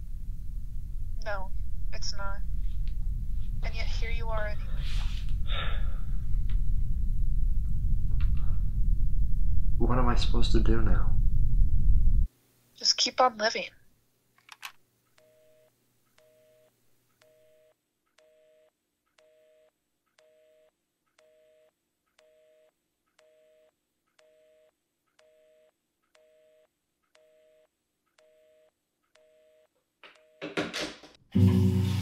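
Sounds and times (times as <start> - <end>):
small clicks: 14.4 - 14.8.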